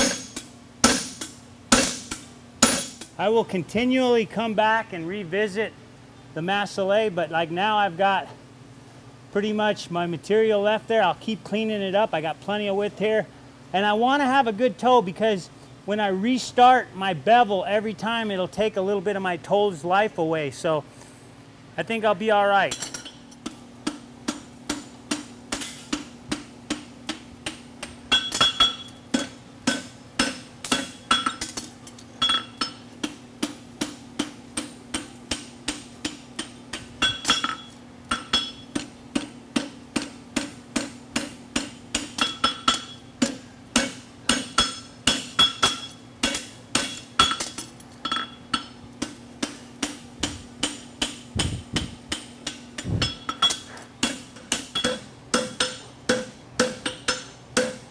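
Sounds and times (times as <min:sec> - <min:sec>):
hammer striking steel on anvil: 0:00.0 - 0:03.2, 0:22.7 - 0:57.9
steady low hum: 0:00.0 - 0:57.9.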